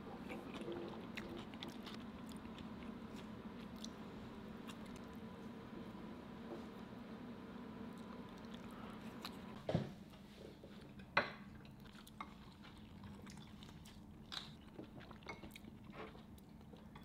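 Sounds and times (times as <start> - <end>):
faint steady hum: 0.0 - 17.0
chewing: 0.1 - 4.0, 4.6 - 5.2, 8.0 - 9.6, 11.6 - 17.0.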